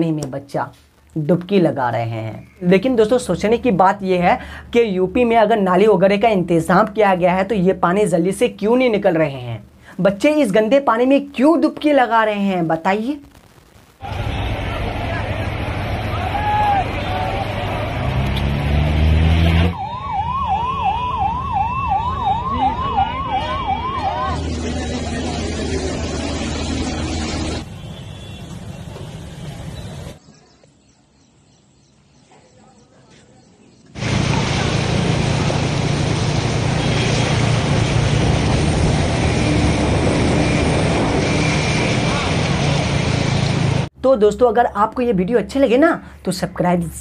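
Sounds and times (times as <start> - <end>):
road traffic noise: 14.0 - 30.6, 32.3 - 44.0
ambulance siren yelping: 19.6 - 25.2.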